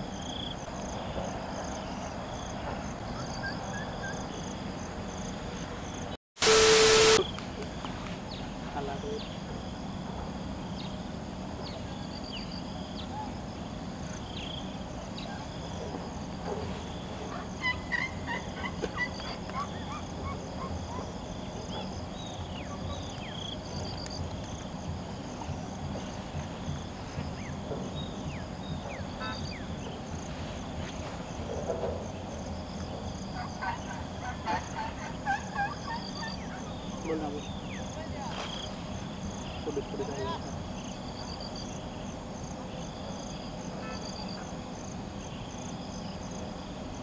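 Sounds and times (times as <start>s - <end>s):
high-pitched drone: 6.4s - 7.2s
birds calling and chirping: 17.2s - 24.2s, 33.4s - 38.0s.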